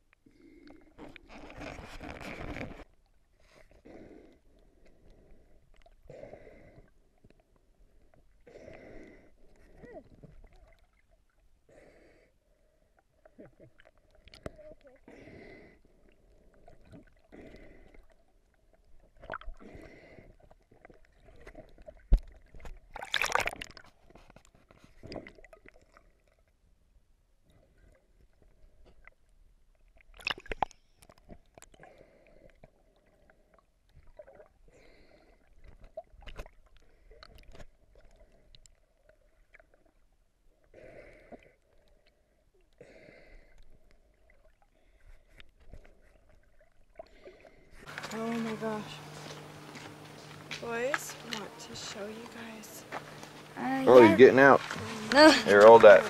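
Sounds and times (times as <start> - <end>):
underwater water sloshing and gurgling: 0.0 - 56.0
water rush: 47.8 - 56.0.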